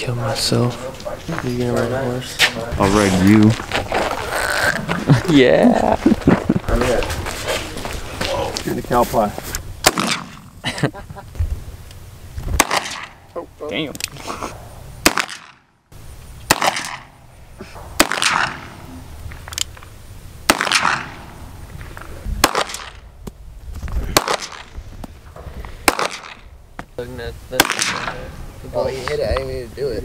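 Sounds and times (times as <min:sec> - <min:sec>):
handgun shots with echo: 0:09.8 - 0:10.4, 0:12.6 - 0:13.2, 0:15.0 - 0:15.6, 0:16.5 - 0:17.1, 0:18.0 - 0:18.8, 0:20.5 - 0:21.3, 0:22.4 - 0:23.0, 0:24.2 - 0:24.7, 0:25.8 - 0:26.4, 0:27.6 - 0:28.2.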